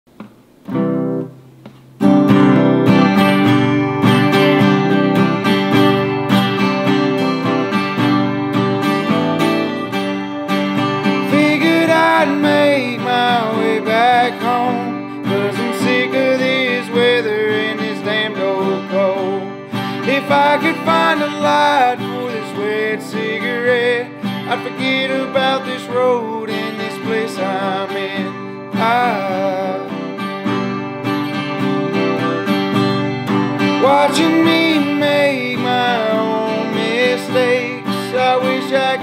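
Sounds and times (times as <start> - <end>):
strummed acoustic guitar: 0.1 - 39.0
person singing: 10.8 - 30.2, 33.6 - 39.0.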